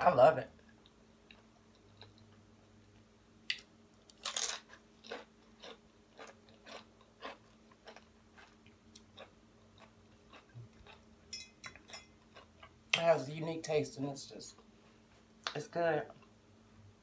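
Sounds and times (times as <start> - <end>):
crunchy chewing of tortilla chip: 4.0 - 11.1.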